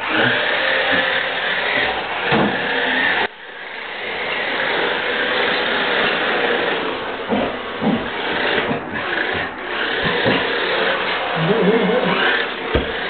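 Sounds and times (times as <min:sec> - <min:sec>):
toy car motor whirring: 0:00.0 - 0:13.0
tyres scrubbing on tiled floor: 0:04.0 - 0:13.0.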